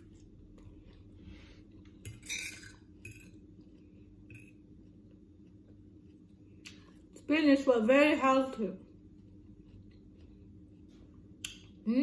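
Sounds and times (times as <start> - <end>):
cutlery scraping a ceramic plate: 2.1 - 3.3.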